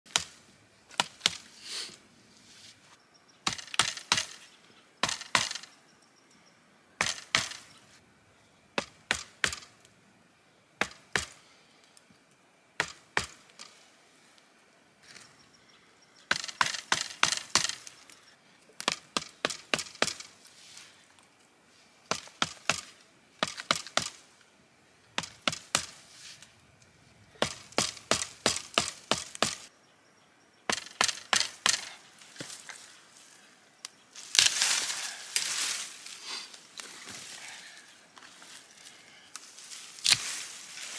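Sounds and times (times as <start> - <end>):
axe chopping into tree trunk: 3.5 - 4.4, 5.0 - 5.6, 7.0 - 7.6, 8.8 - 9.7, 16.3 - 17.8, 27.4 - 29.7, 30.7 - 32.6.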